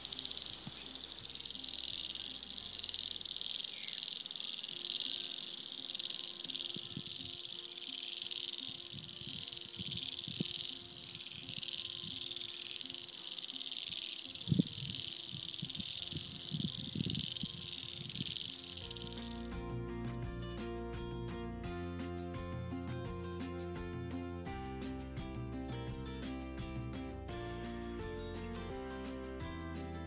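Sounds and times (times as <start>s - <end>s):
insects trilling: 0.0s - 19.6s.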